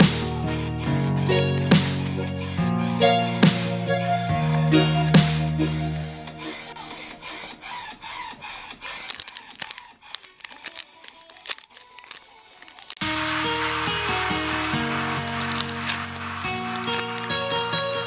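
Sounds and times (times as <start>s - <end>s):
background music: 0.0s - 7.5s, 13.0s - 18.0s
foil pack crinkling and tearing: 8.2s - 13.2s, 15.0s - 17.5s.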